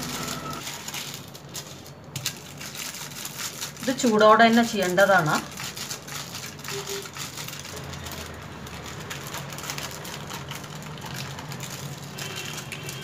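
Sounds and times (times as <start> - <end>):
paper crinkling and rustling: 0.0 - 13.0.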